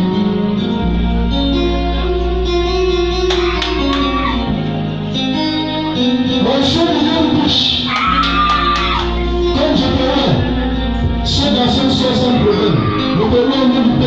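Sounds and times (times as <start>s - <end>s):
guitar instrumental music: 0.0s - 14.0s.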